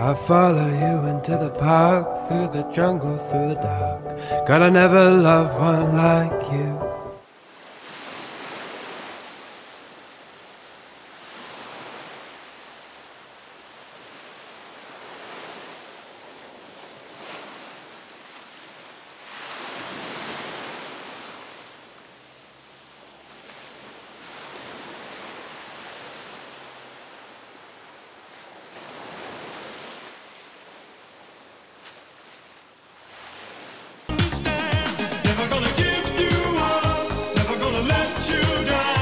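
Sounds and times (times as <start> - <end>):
surf-like rushing noise: 7.3 - 30.4.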